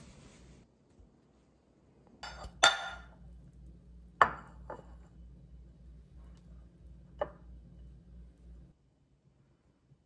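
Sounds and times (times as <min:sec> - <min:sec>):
low steady hum: 0:00.0 - 0:10.0.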